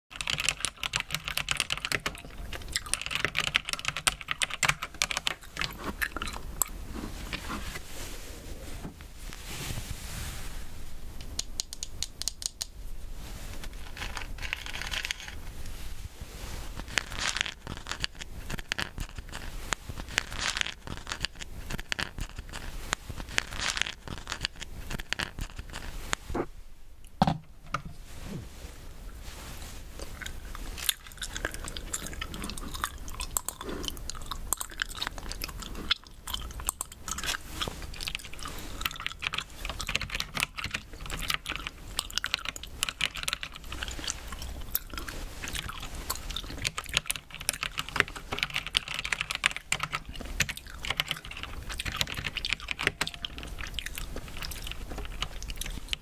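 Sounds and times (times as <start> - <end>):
mechanical keyboard typing: 0.1 - 5.8, 38.1 - 44.0, 46.5 - 53.8
gummy bears handled and chewed: 0.1 - 7.8, 13.5 - 15.8, 16.6 - 27.2, 29.7 - 56.0.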